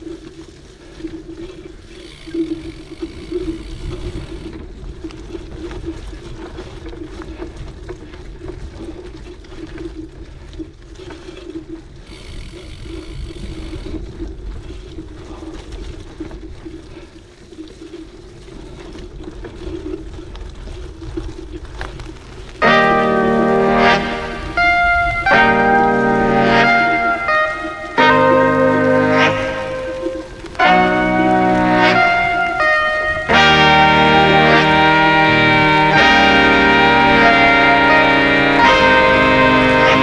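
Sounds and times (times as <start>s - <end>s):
wind buffeting microphone: 0.0s - 36.2s
bike tyre rumble on dirt: 0.0s - 40.0s
high buzz: 22.6s - 40.0s.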